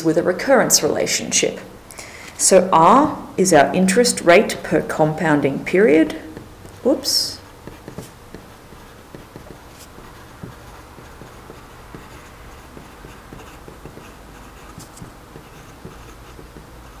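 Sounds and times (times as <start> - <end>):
pen nib scratching on paper: 6.3 - 17.0.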